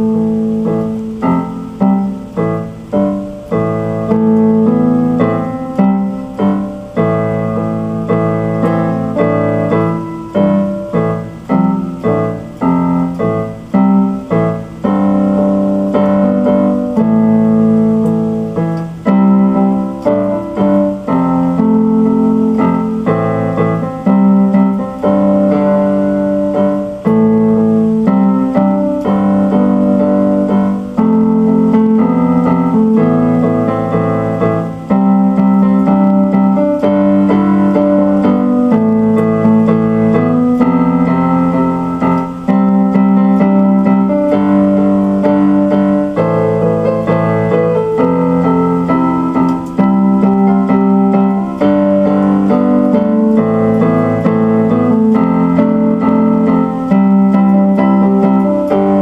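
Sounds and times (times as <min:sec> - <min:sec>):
slow piano piece on keyboard: 0:00.0 - 0:59.0.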